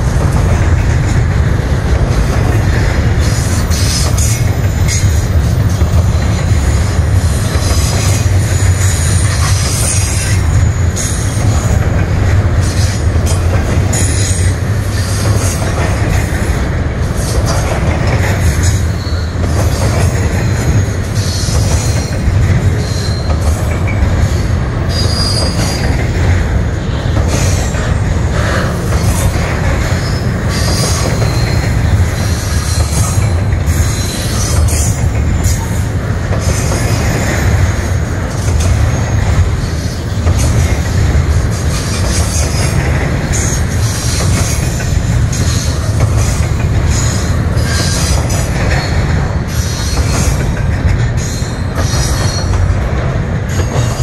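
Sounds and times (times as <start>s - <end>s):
steel wheels rumbling on rail: 0.0s - 54.0s
high-pitched wheel squeals: 22.8s - 24.0s, 24.9s - 25.8s.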